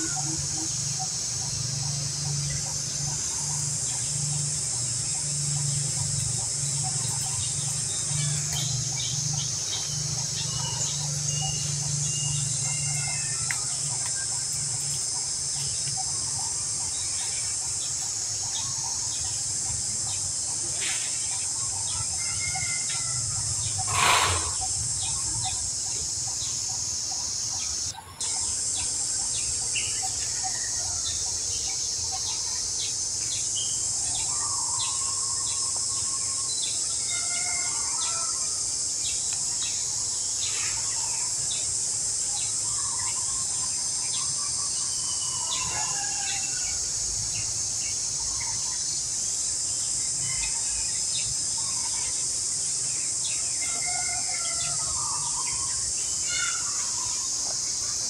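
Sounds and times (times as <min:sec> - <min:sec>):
insect drone: 0:00.0 - 0:58.0
bird chirps and whistled calls: 0:23.7 - 0:25.6.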